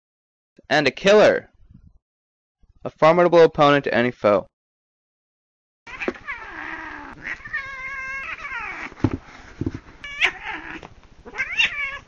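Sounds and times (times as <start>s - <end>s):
cat yowling: 5.9s - 9.0s, 10.0s - 12.0s
soft thumps: 8.9s - 9.9s.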